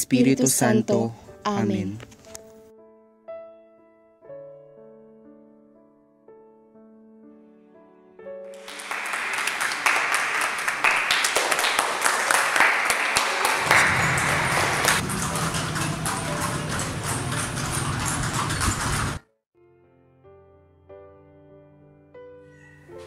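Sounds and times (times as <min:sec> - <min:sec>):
crowd applause: 0:08.6 - 0:19.2.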